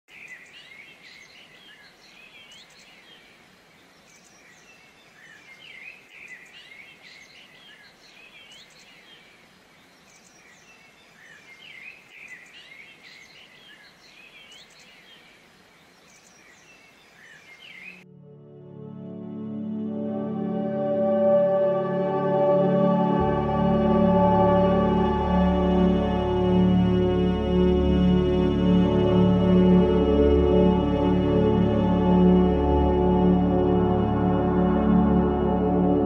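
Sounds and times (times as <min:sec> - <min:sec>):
faint background hiss: 0:00.1 - 0:36.0
birds chirping and calling: 0:16.0 - 0:18.0.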